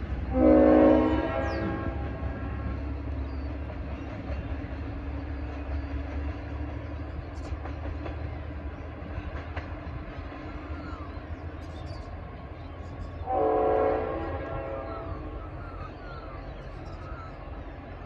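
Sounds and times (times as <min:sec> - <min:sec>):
distant diesel locomotive rumble: 0:00.0 - 0:18.0
locomotive air horn blast: 0:00.3 - 0:02.7, 0:13.3 - 0:15.2.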